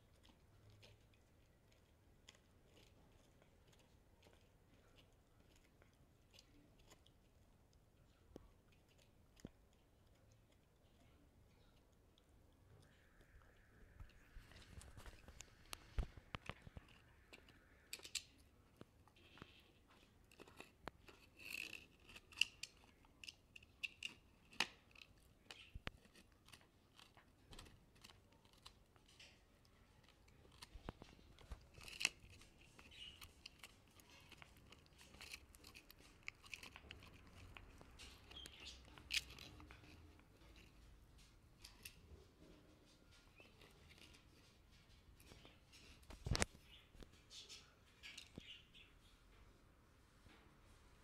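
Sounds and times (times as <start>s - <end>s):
dog chewing rawhide bone: 0.0s - 7.8s, 20.0s - 41.0s.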